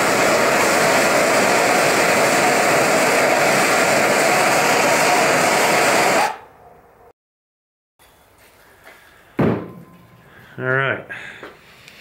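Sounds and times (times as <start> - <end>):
blowtorch flame hissing: 0.0 - 6.4.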